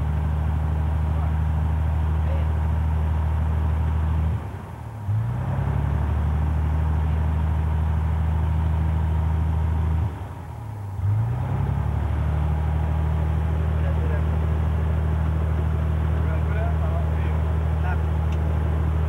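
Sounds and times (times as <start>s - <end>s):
light plane engine drone: 0.0s - 5.1s.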